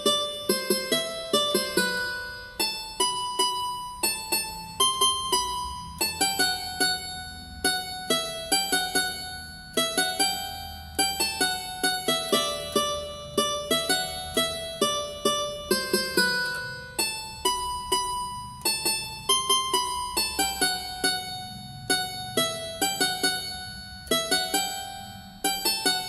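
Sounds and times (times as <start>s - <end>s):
electronic keyboard melody: 0.0s - 26.0s.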